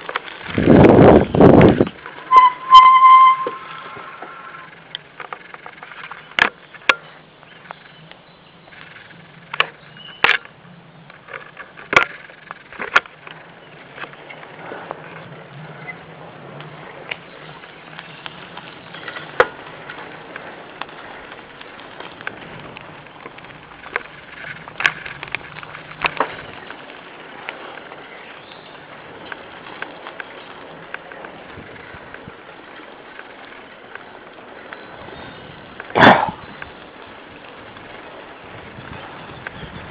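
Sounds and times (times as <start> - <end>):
bicycle knocks and rattles: 0.0 - 39.9
bicycle rolling on dirt track: 0.0 - 39.9.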